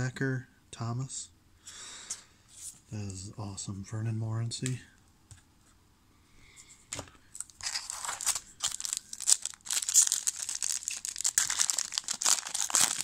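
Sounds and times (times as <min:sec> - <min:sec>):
wrapper tearing and crinkling: 0:07.4 - 0:13.0.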